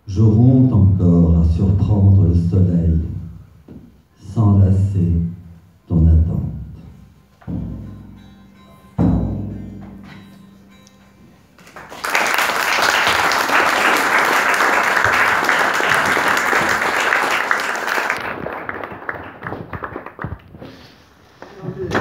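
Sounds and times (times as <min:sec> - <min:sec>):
low musical note ringing: 0:06.7 - 0:11.9
audience clapping: 0:11.6 - 0:21.1.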